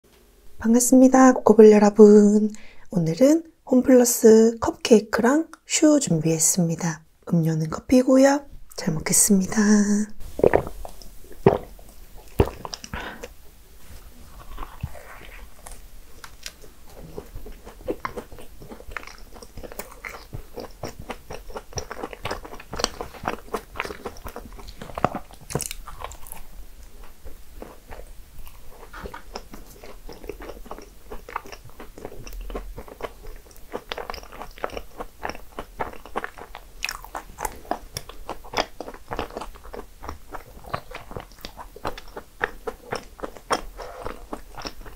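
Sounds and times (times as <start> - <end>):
person chewing crunchy food: 10.2 - 44.9.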